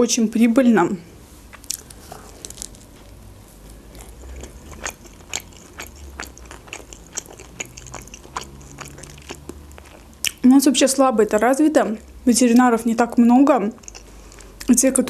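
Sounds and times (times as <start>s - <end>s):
person chewing: 1.4s - 10.4s, 13.8s - 14.7s
crust crunching: 1.5s - 10.4s
wet mouth clicks: 4.2s - 9.6s.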